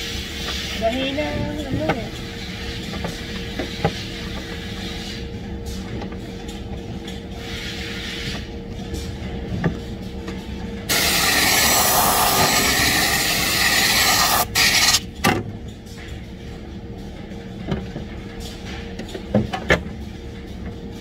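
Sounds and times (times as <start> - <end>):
machinery hum: 0.0 - 21.0
compressed air blow gun hissing: 10.9 - 15.0.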